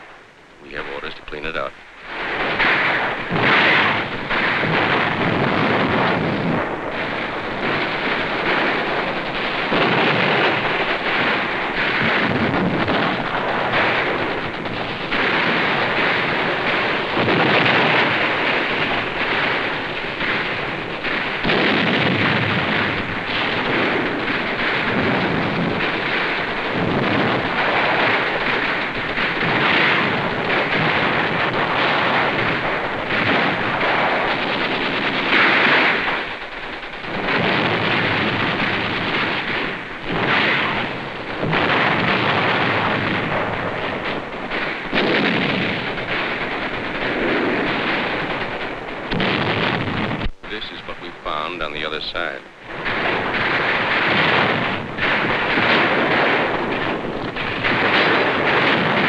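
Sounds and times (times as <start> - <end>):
explosions: 0.0 - 59.0
gunfire: 0.7 - 59.0.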